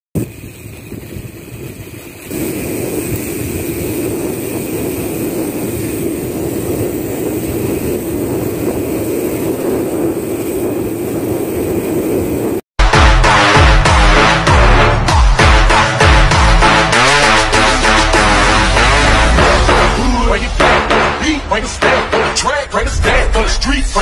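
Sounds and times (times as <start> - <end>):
bicycle road noise: 0.2 - 12.6
wind rushing over microphone: 0.2 - 12.6.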